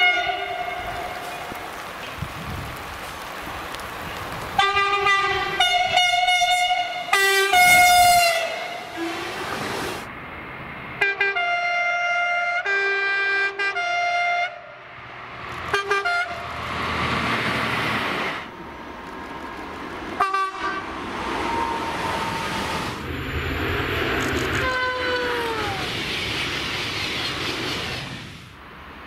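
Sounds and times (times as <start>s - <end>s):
two-tone train horn blasts: 0.0s - 1.3s, 4.6s - 9.6s, 11.0s - 14.7s, 15.7s - 16.5s, 20.2s - 20.9s, 24.6s - 25.6s
train rumbling: 0.0s - 12.6s, 14.9s - 29.0s
short train horn toots: 4.6s - 9.5s, 24.6s - 25.7s.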